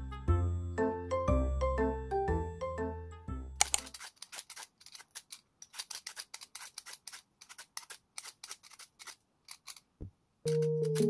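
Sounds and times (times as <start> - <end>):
vegetable peeler scraping: 3.7 - 9.9.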